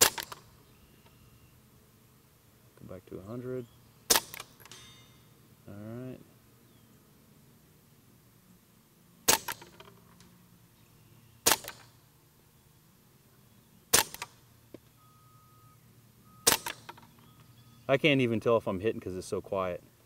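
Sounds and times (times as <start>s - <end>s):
quiet pistol shots: 0.0s - 0.5s, 4.1s - 5.0s, 9.2s - 9.9s, 11.4s - 12.0s, 13.9s - 14.4s, 16.4s - 17.0s.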